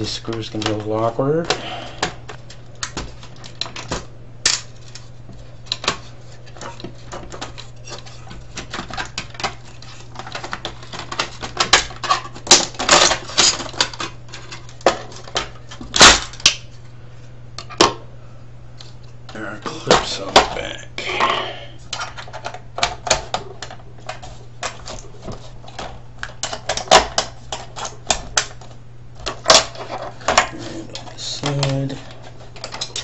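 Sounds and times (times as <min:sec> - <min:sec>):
steady low hum: 0:00.0 - 0:33.0
metal parts clattering: 0:29.4 - 0:33.0.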